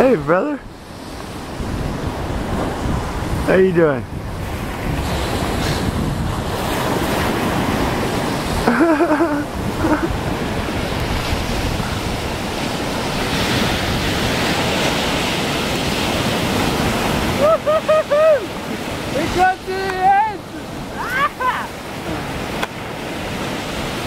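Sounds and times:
waves breaking on a beach: 0.0 - 24.0
wind buffeting microphone: 0.0 - 24.0
person's voice: 19.1 - 22.2.

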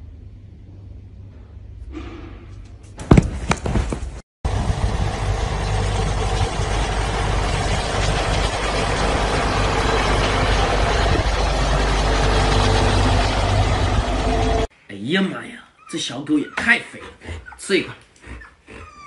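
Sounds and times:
tractor engine running: 3.5 - 14.7.

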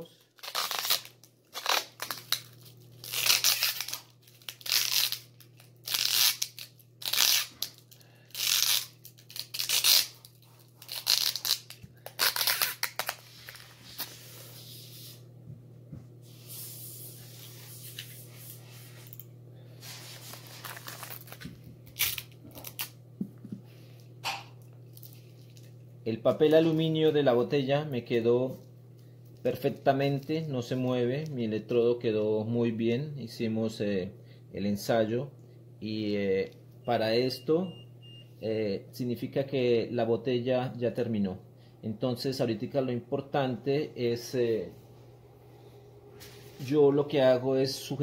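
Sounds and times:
low steady hum: 0.0 - 48.0
adhesive tape pulled off roll: 0.3 - 14.2.

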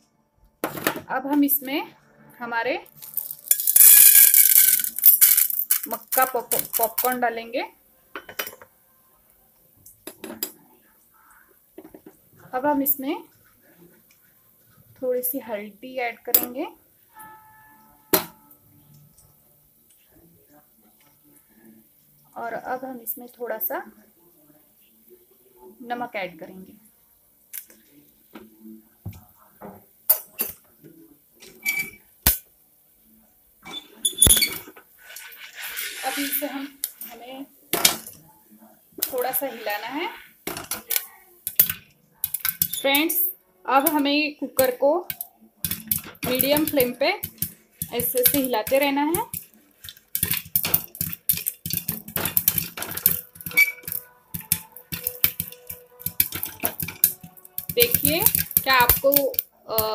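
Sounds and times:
popcorn popping in metal pot: 3.0 - 7.3, 40.4 - 43.2, 44.6 - 59.9.

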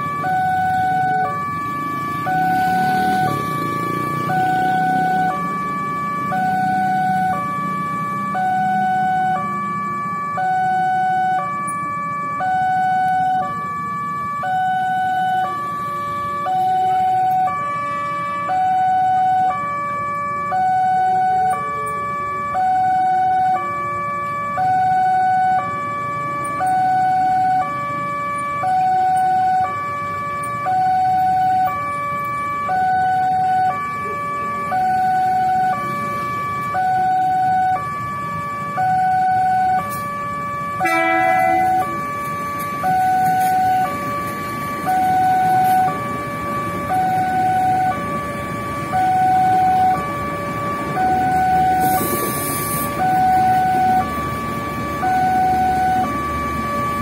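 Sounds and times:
engines idling: 0.0 - 57.0
level crossing two-tone alarm: 0.0 - 57.0.

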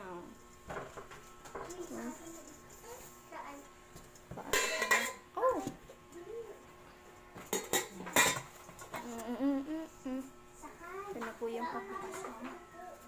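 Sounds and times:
metal pot and lid clanking: 4.5 - 5.2.

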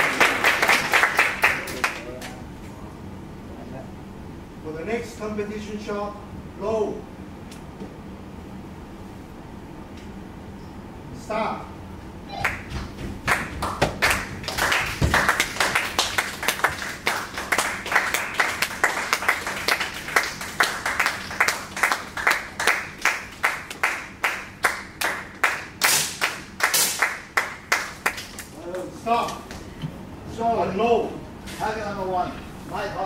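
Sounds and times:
rhythmic clapping: 0.0 - 2.4, 12.4 - 29.7.

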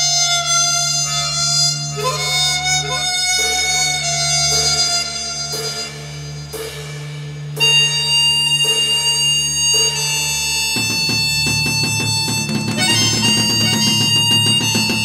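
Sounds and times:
instrumental background music: 0.0 - 15.0.

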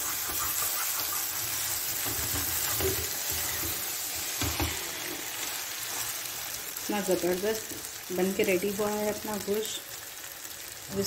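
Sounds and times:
meat sizzling in oil: 0.0 - 11.0
spatula knocking against pan: 1.9 - 4.8.

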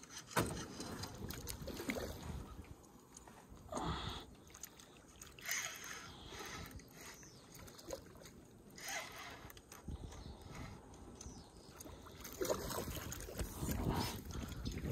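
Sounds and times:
water splashing: 0.0 - 3.3, 4.2 - 9.5, 11.7 - 14.9.

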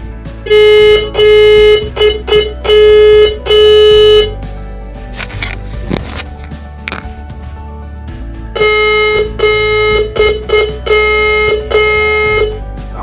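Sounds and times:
morse code keyed tone: 0.5 - 4.4, 8.6 - 12.6.

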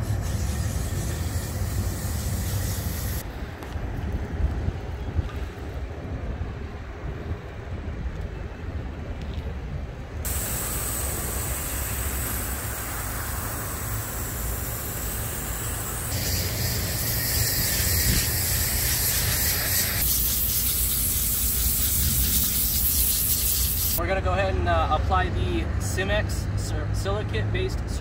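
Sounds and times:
water spraying from a nozzle: 0.0 - 3.2, 10.3 - 24.0.

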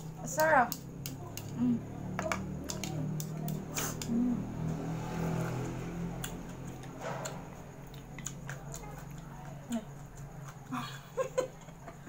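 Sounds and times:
chopsticks clicking on plastic: 0.4 - 1.6, 2.2 - 4.1.

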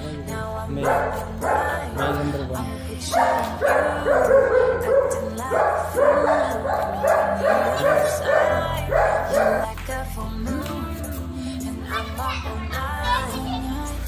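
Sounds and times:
pop song with steady beat: 0.0 - 14.0
dog barking: 0.8 - 2.3, 3.1 - 9.8.

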